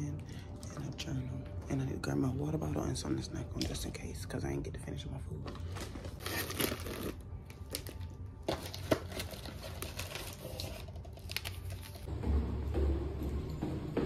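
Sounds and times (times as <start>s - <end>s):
shrink-wrap crinkling: 5.5s - 12.1s.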